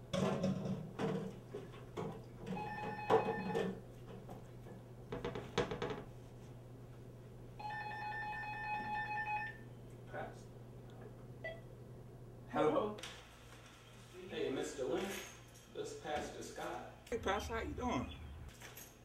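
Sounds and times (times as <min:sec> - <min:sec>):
dishes clattering in sink: 0:00.1 - 0:05.7
electronic phone ring: 0:02.5 - 0:03.7, 0:07.6 - 0:09.6
steady hum: 0:06.1 - 0:14.4, 0:15.9 - 0:19.0.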